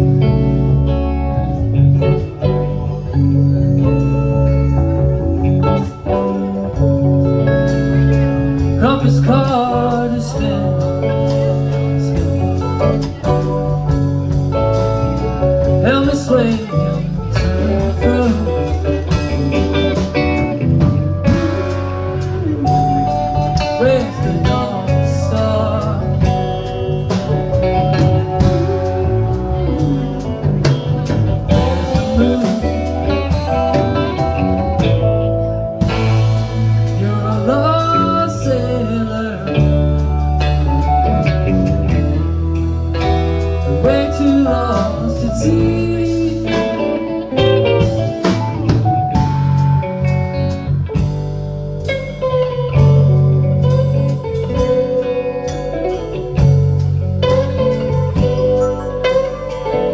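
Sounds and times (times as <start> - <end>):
electric guitar bending notes: 0.0 - 59.9
live rock band playing: 0.0 - 59.9.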